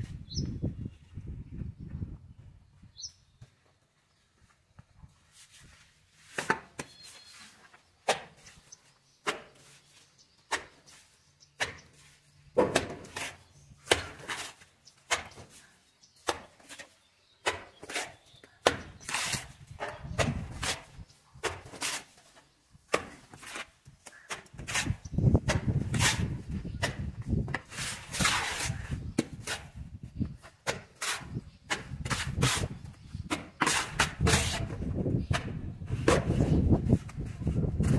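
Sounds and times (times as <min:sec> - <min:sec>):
trowel scraping wet mortar: 0:12.9 - 0:15.6, 0:16.3 - 0:22.2, 0:22.9 - 0:37.9.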